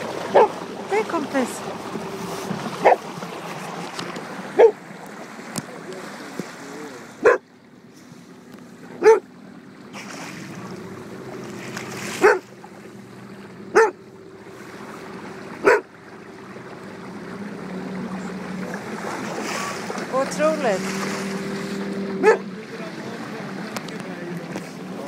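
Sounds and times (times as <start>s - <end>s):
water and boat noise: 0.0s - 25.0s
bark-like animal calls: 0.3s - 0.6s, 2.8s - 3.0s, 4.5s - 4.8s, 7.2s - 7.4s, 9.0s - 9.3s, 12.2s - 12.5s, 13.7s - 14.0s, 15.6s - 15.9s, 22.2s - 22.5s.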